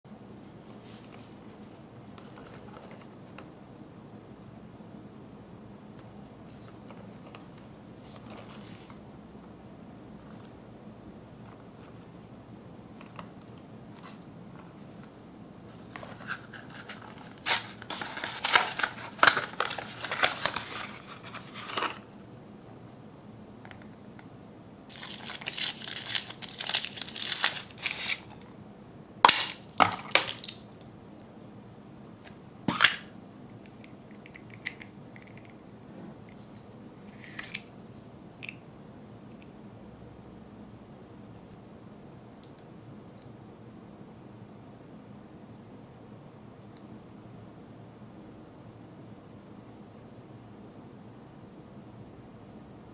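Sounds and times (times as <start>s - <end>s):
foil wrapper crinkling: 16.1s - 22.1s, 24.9s - 28.4s, 29.3s - 30.6s
cardboard box crinkling and tearing: 16.2s - 22.0s, 24.9s - 28.3s
chocolate shell cracking: 29.3s - 30.6s.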